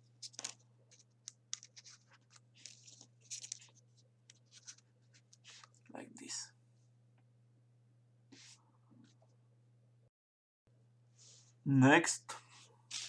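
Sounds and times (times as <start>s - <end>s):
paper scratching and rustling: 0.0s - 5.8s.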